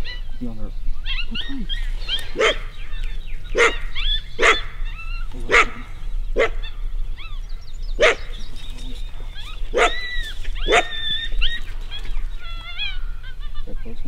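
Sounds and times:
coyote yipping and whining: 0.0s - 14.0s
dog barking: 2.3s - 2.7s, 3.5s - 4.8s, 5.4s - 6.8s, 8.0s - 8.4s, 9.7s - 11.2s.

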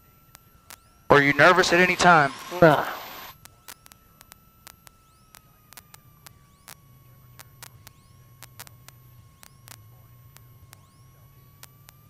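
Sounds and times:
electrical static crackle: 0.0s - 12.0s
steady whine: 0.0s - 12.0s.

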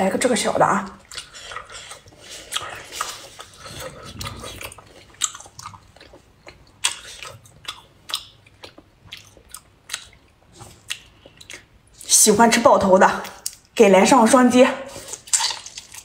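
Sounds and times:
wet chewing and mouth smacks: 1.0s - 12.1s, 13.2s - 13.7s, 15.0s - 16.0s
squelches and clicks of food handled: 13.2s - 13.8s, 14.9s - 16.0s.

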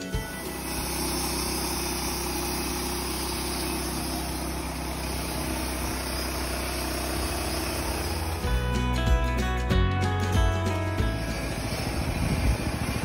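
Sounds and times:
sawmill gas engine running: 0.0s - 13.0s
band blade cutting log: 0.2s - 8.5s.

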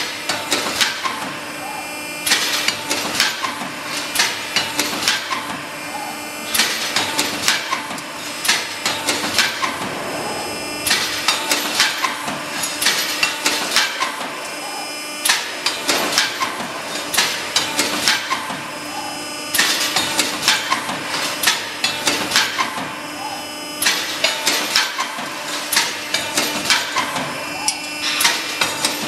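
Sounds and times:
hydraulic power unit humming: 0.0s - 29.0s
metallic punch strikes: 9.2s - 13.0s.

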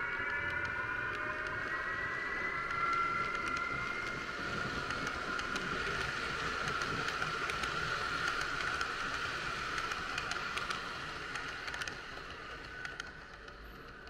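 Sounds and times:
high whine: 0.0s - 14.0s
small clicks over track: 0.0s - 14.0s
model train wheels rattling: 3.2s - 14.0s.

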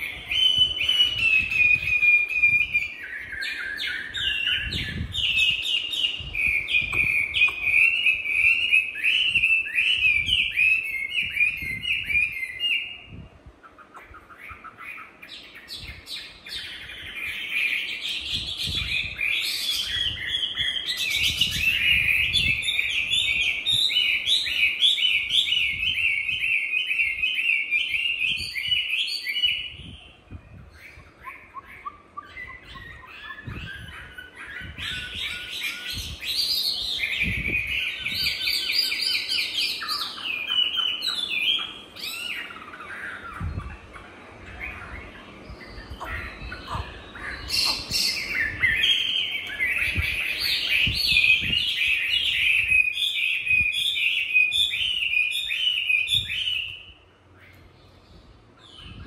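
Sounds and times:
bird singing varied song: 0.0s - 59.0s.

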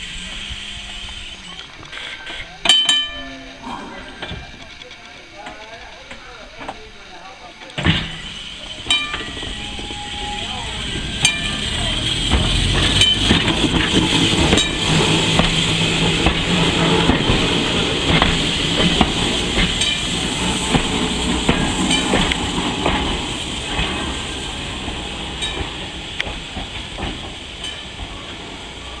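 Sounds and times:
streetcar wheels rumbling on rails: 0.0s - 29.0s
wheels clicking over track: 7.6s - 29.0s.

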